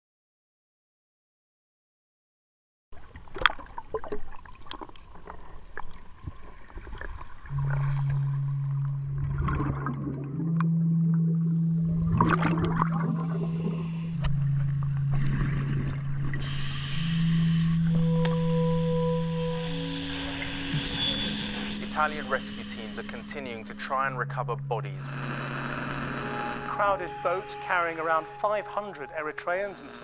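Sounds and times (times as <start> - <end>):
bubbles gurgling: 3.0 - 18.7
underwater clicks and crackle: 3.2 - 11.4, 12.1 - 16.9
low music drone: 7.5 - 30.0.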